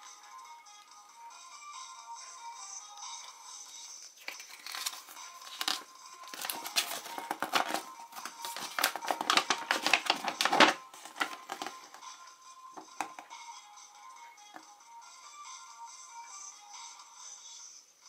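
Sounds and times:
foil wrapper crinkling: 4.2s - 11.9s
paper leaflet rustling: 4.3s - 11.9s.

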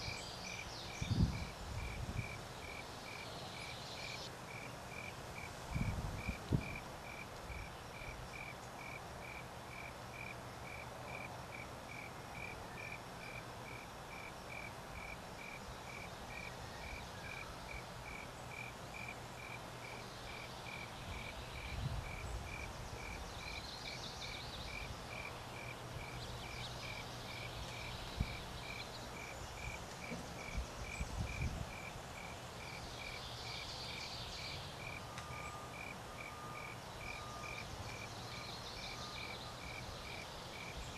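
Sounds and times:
insect chirping: 0.0s - 40.9s.

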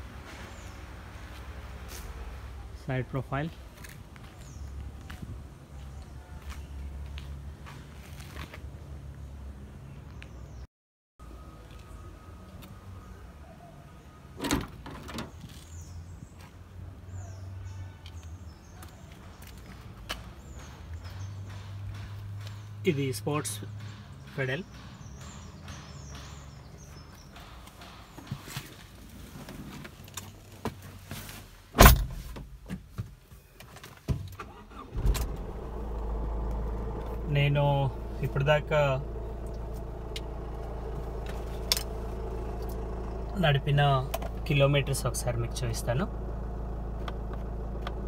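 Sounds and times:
car door clunk: 31.8s - 32.9s, 34.1s - 37.2s.

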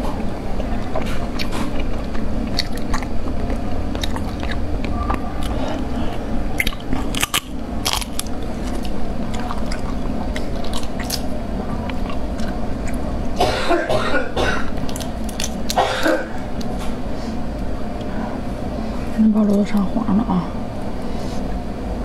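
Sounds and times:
steady low hum: 0.0s - 22.0s
wet chewing: 0.2s - 13.4s, 14.7s - 15.8s.

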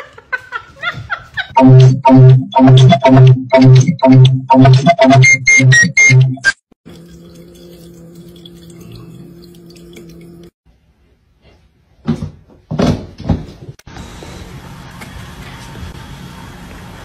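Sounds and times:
water fountain pump humming: 6.8s - 10.6s
water trickling: 6.8s - 10.6s.

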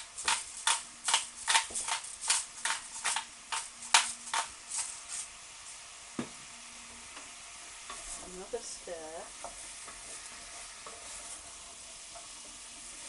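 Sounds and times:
pepper mill grinding: 0.0s - 5.4s.

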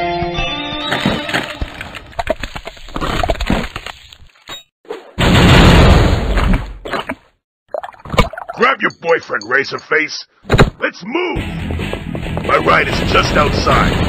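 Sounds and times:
loud crashing burst: 5.2s - 6.3s
cartoon cracking and smashing impacts: 5.2s - 6.8s.

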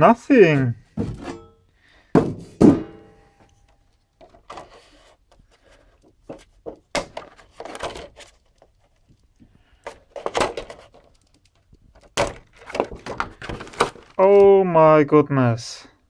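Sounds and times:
sharp knocks: 2.1s - 3.2s.

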